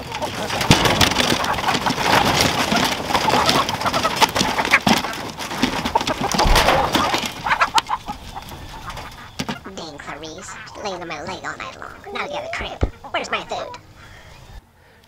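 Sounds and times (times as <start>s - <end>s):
feet scrabbling on wooden ramp: 0.0s - 9.6s
wings flapping: 0.0s - 13.6s
hens clucking: 0.0s - 14.6s.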